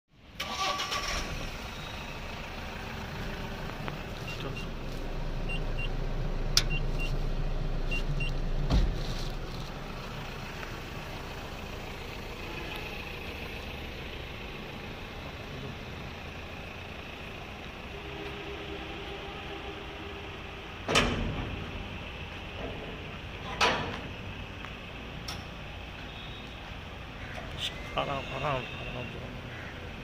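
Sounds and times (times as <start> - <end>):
diesel engine idling: 0.2 - 30.0
heavy thump: 8.6 - 9.0.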